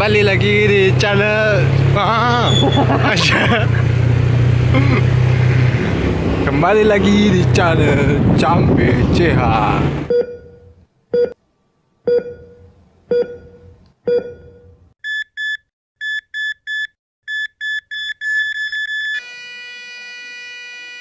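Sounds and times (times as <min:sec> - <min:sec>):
low heart monitor pings: 0:10.1 - 0:11.4, 0:12.1 - 0:15.2
short high beeps: 0:12.1 - 0:19.2.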